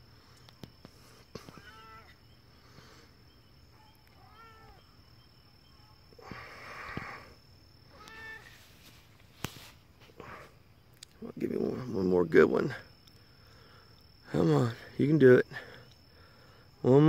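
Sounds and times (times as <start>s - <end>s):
cat meowing: 1.6s - 2.2s, 4.2s - 4.8s, 7.9s - 8.5s
rustling: 8.0s - 10.4s.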